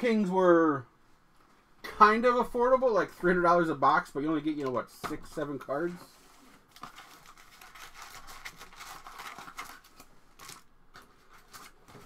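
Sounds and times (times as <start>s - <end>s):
foil packs crinkling: 6.6s - 12.0s.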